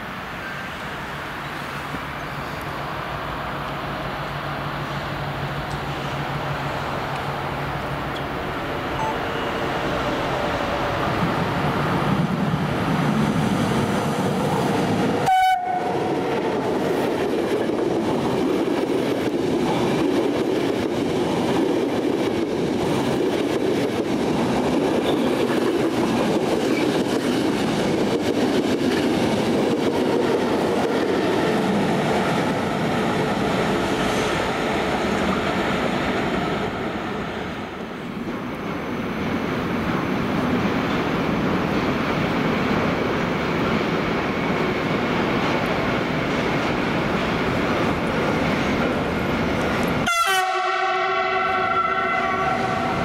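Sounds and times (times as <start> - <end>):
train rumbling and clattering on rails: 0.0 - 53.0
train horn: 9.0 - 9.8, 15.2 - 16.6, 50.0 - 53.0.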